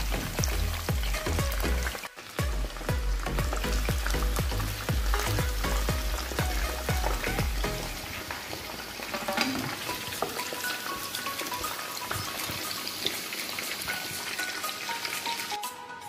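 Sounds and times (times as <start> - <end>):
background music with deep bass: 0.0 - 8.1
chicken deep-frying in oil: 0.0 - 15.8.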